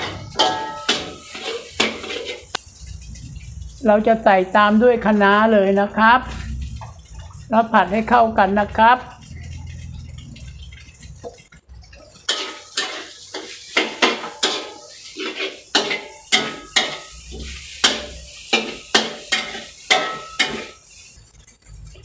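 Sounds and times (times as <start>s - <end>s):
metal spatula scraping a wok: 0.0s - 3.7s, 12.0s - 22.0s.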